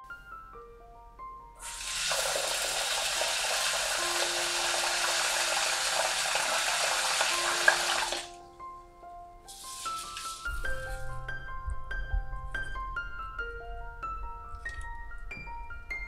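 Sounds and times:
tap water running into pot: 1.6 - 8.3.

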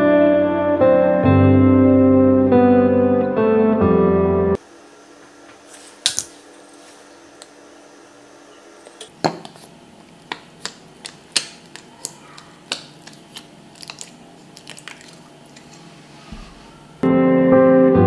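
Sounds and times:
music: 0.0 - 4.6, 17.0 - 18.0
slime clicking and popping: 10.2 - 15.2.

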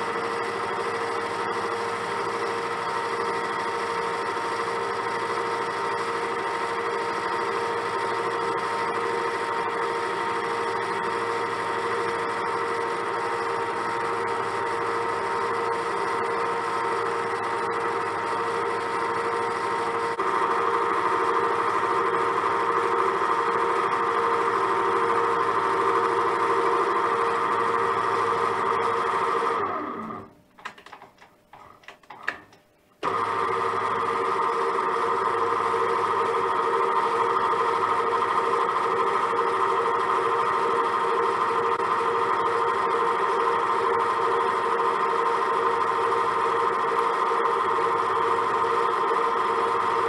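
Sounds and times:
metal lathe running: 0.0 - 30.3, 33.0 - 50.0.

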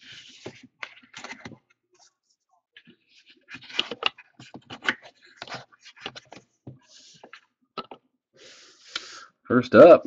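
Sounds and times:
cards and box handled: 0.0 - 2.1, 2.8 - 8.0.

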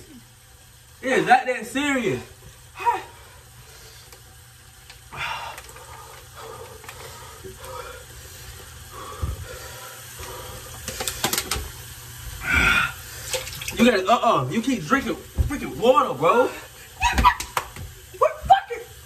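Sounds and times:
person gasping breaths: 5.1 - 11.4, 12.4 - 13.4.

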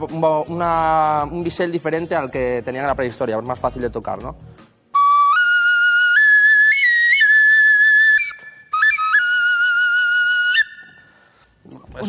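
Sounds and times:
bone flute playing tune: 5.0 - 11.2.

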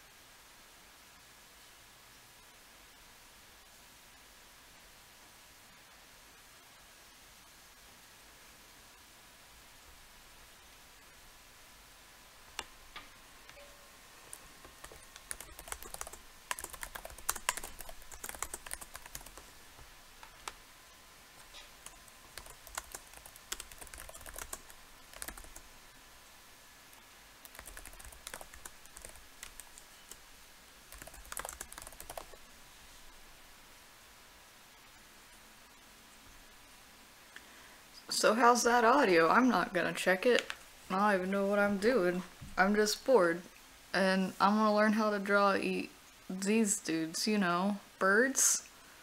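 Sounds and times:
typing on computer keyboard: 14.7 - 19.5, 21.4 - 25.6, 27.4 - 30.2, 30.9 - 32.4.

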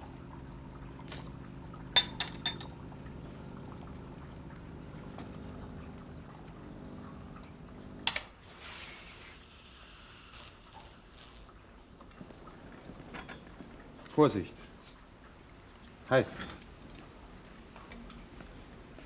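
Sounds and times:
coffee pouring into cup: 0.0 - 8.0, 10.4 - 14.4
coffee machine humming: 0.0 - 13.8
short hiss: 8.4 - 11.6.

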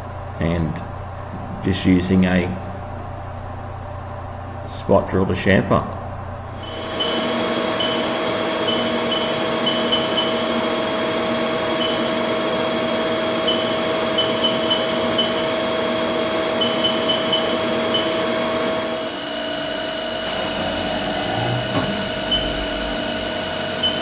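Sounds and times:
humming machine drone: 6.0 - 24.0.

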